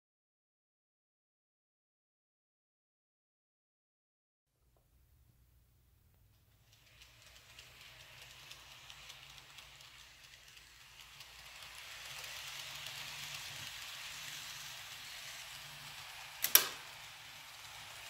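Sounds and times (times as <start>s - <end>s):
model train whirring: 6.3s - 18.0s
sharp click: 16.4s - 16.8s.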